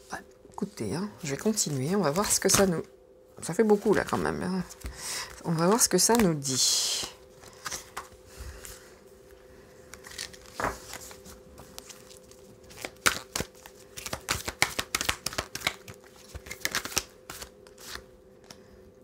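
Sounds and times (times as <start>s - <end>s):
faint steady hum: 0.0s - 19.0s
cards being shuffled: 3.6s - 6.4s, 7.0s - 8.8s, 9.9s - 18.6s.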